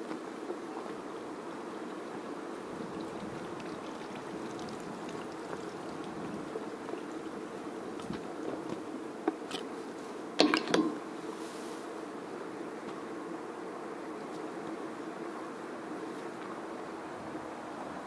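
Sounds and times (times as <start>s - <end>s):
flowing stream water: 2.6s - 8.7s.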